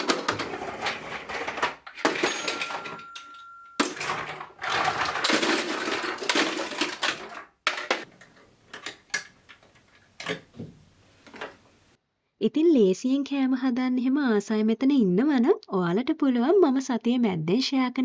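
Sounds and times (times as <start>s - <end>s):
household objects clattering: 0.0s - 11.6s.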